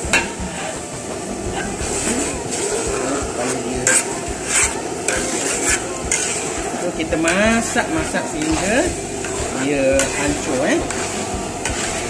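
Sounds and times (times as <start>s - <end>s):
eggs sizzling in a wok: 0.0s - 12.0s
metal ladle scraping a wok: 0.0s - 12.0s.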